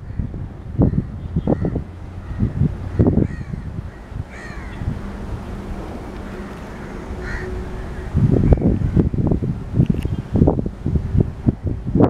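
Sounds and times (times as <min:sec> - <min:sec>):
bird calls: 0:00.0 - 0:09.0
diesel locomotive drone: 0:00.0 - 0:12.0
wind rumble on microphone: 0:00.0 - 0:12.0.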